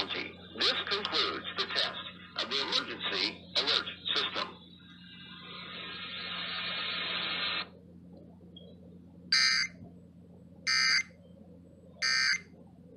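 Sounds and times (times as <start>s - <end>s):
radio hiss: 0.0s - 7.7s
harsh data burst screeches: 9.4s - 9.7s, 10.7s - 11.0s, 12.0s - 12.4s.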